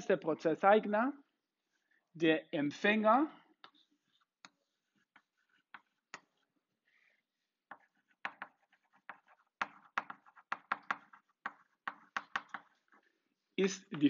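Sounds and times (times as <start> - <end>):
chalk tapping on blackboard: 3.6 - 6.5, 7.7 - 13.0.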